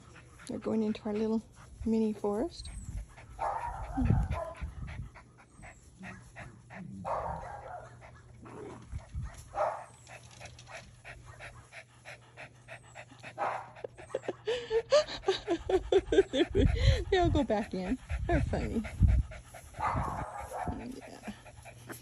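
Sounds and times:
small clicks and rustles: 8.7 - 11.0.

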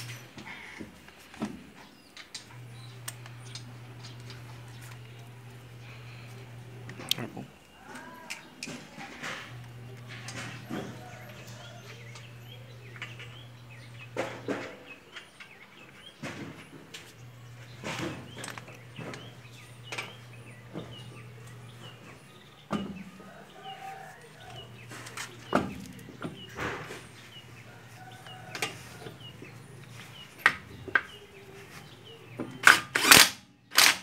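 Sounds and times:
birds chirping: 0.0 - 32.8.

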